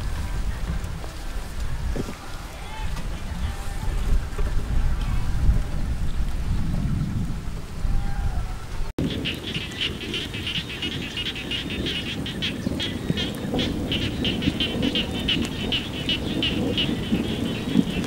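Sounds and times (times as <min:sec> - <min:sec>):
wind rumble on microphone: 0:00.0 - 0:18.0
chorus of frogs: 0:09.0 - 0:18.0.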